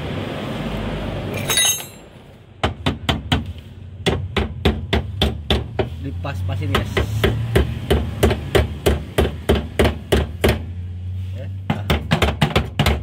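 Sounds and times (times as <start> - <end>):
metal clink: 1.3 - 2.2
hammer striking metal: 1.4 - 2.1.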